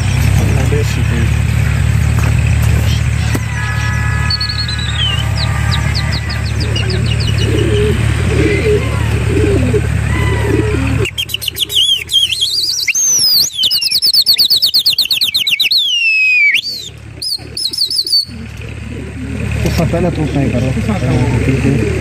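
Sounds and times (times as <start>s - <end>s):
steady low hum: 0.0s - 13.6s
small birds chirping: 2.4s - 20.2s.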